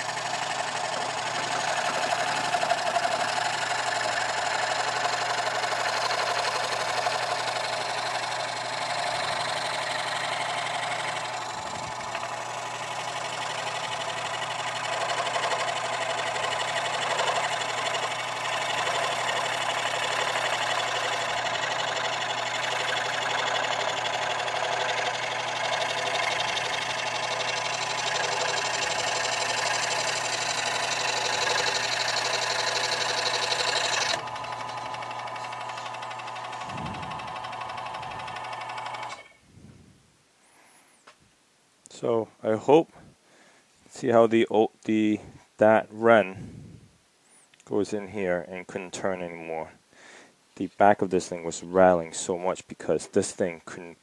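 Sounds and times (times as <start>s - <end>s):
scroll saw cutting wood: 0.0s - 39.4s.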